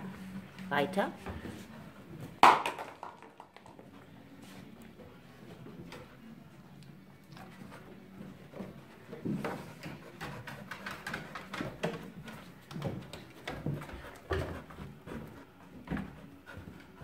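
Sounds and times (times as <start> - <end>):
dog panting: 7.3 - 17.0
dog claws clicking on wood: 9.4 - 14.8.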